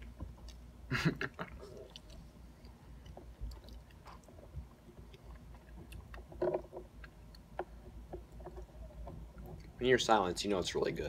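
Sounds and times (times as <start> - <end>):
chewing with wet mouth clicks: 0.0 - 0.7, 1.4 - 6.3, 6.9 - 7.6
low steady hum: 0.0 - 11.0.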